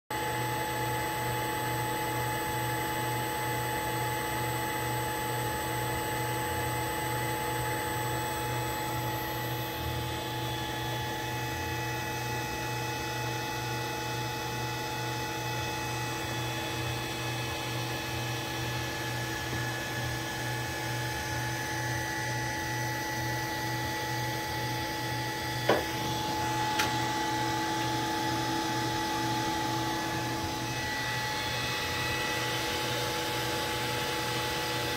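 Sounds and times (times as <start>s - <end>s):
electric motor whining: 25.0s - 34.9s.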